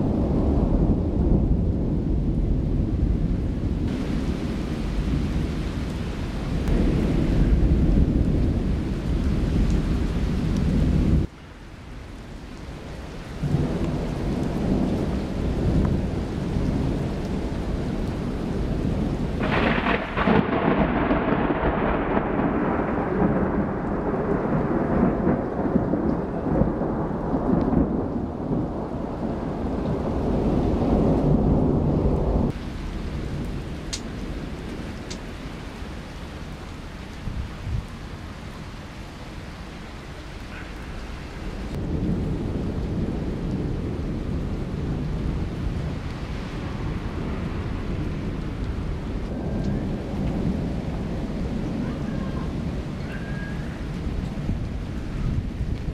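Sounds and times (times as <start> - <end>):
thunder rumbling: 0.0 - 11.3, 12.8 - 55.9
steady rain: 0.0 - 55.9
sharp thunder crack: 19.4 - 28.9.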